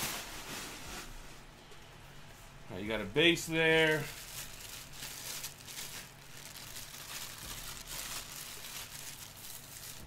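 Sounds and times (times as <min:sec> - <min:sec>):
plastic wrap crinkling: 0:00.0 - 0:01.2, 0:03.6 - 0:10.0.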